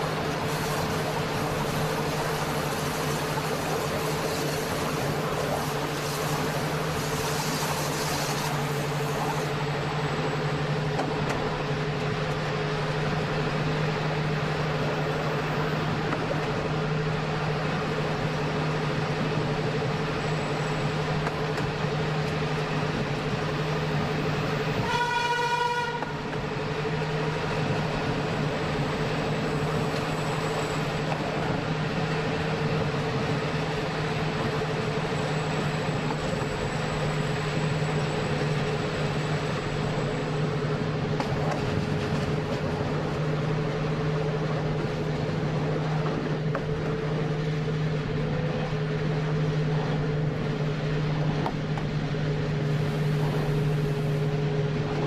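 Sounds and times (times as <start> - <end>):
electric train rolling on rails: 0.0 - 55.0
high train horn blast: 24.7 - 26.3.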